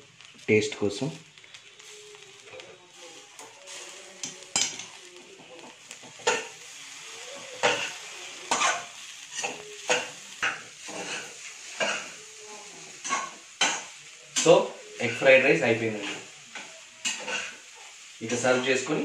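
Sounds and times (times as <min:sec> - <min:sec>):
rice sizzling: 0:00.0 - 0:19.0
metal spatula scraping pan: 0:06.1 - 0:18.8.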